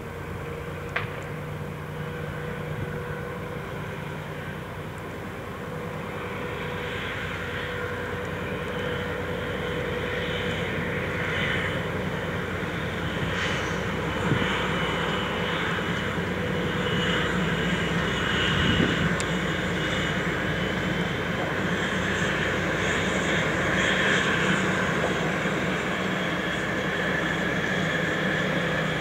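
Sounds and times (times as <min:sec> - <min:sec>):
diesel locomotive passing: 0:00.0 - 0:29.0.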